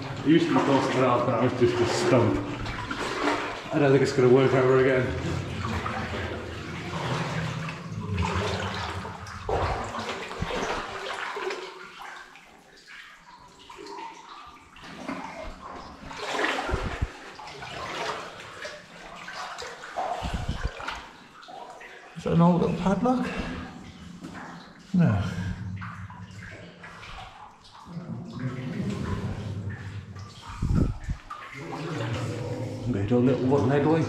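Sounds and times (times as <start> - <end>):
water sloshing around wading legs: 0.0 - 34.0.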